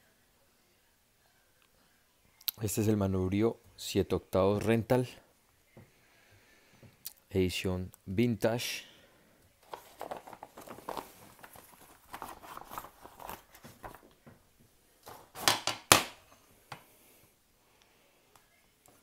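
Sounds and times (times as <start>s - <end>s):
plastic bag crinkling: 9.6s - 14.2s.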